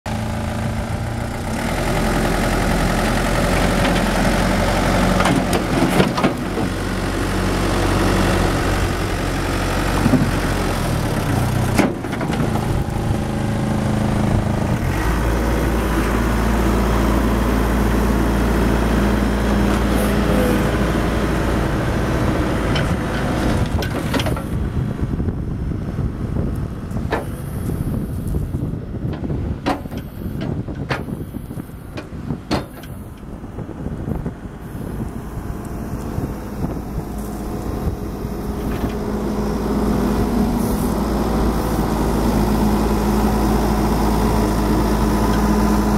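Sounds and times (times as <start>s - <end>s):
diesel engine running: 0.1s - 45.9s.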